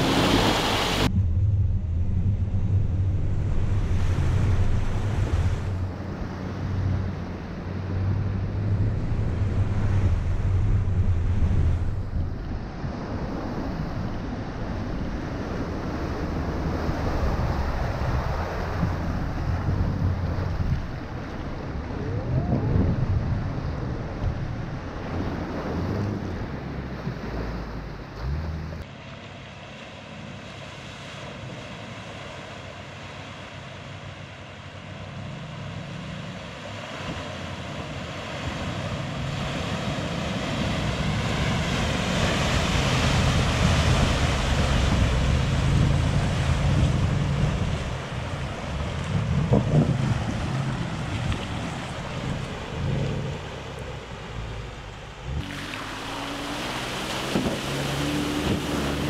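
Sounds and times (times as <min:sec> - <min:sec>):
water rushing and splashing: 0:00.0 - 0:59.0
vehicle engine running: 0:53.4 - 0:59.0.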